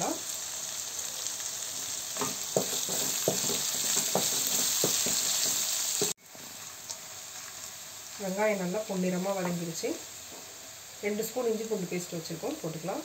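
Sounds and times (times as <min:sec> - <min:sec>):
onions sizzling in hot oil: 0:00.0 - 0:13.0
utensil scraping and knocking pan: 0:02.2 - 0:06.1.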